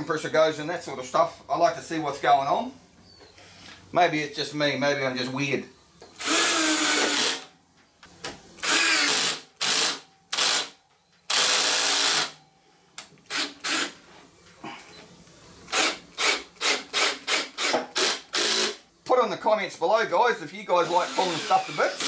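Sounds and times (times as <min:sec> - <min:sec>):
drill driving screws into metal: 0:06.2 - 0:07.5, 0:08.6 - 0:12.4, 0:13.3 - 0:14.0, 0:15.7 - 0:18.8, 0:20.9 - 0:22.0.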